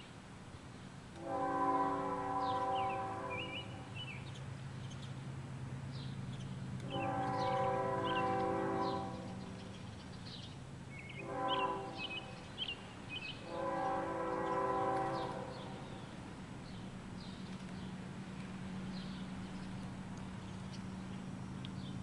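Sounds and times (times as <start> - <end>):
low steady rumble: 0.0 - 22.0
distant locomotive air horn: 1.2 - 4.0, 6.8 - 9.6, 11.1 - 12.5, 13.4 - 16.1
birds chirping: 2.3 - 5.2, 5.9 - 22.0.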